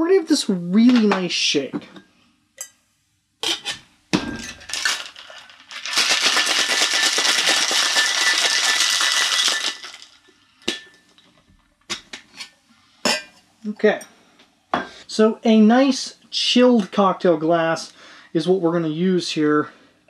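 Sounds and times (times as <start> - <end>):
ice rattling in cocktail shaker: 4.4 - 10.9.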